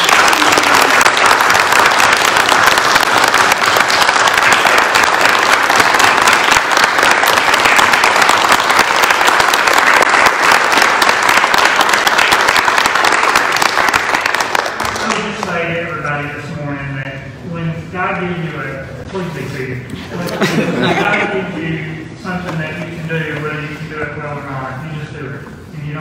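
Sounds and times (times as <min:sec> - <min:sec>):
crowd applauding: 0:00.0 - 0:15.5.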